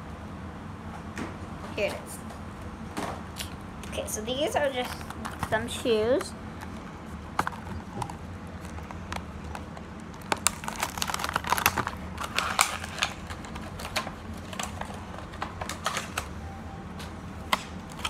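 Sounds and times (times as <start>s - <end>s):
plastic packaging clicks and crinkling: 7.4s - 16.4s.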